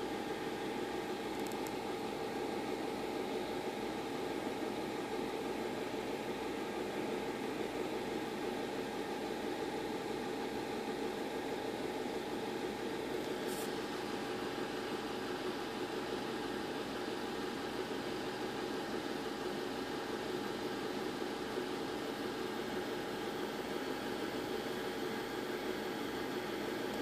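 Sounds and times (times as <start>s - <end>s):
mechanical hum with hiss: 0.0s - 27.0s.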